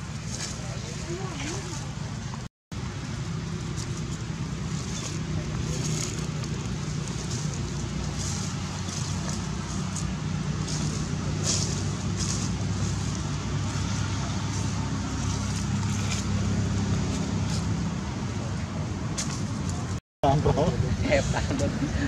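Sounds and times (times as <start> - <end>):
low engine hum: 0.0 - 22.0.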